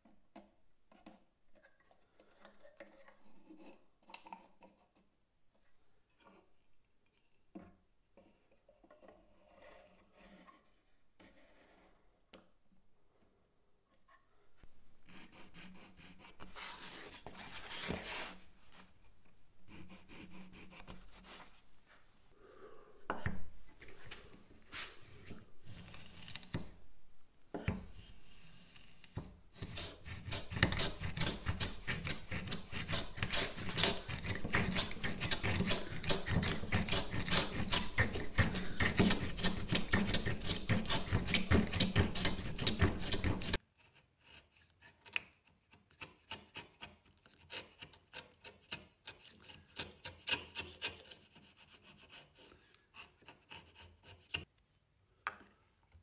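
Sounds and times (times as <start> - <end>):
plane shaving wood: 29.6 - 43.6.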